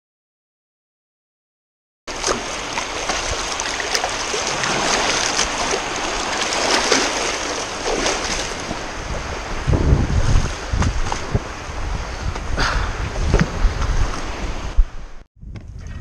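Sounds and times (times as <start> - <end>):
small water splashes: 2.1 - 8.9
sea surf washing and fizzing: 2.1 - 14.7.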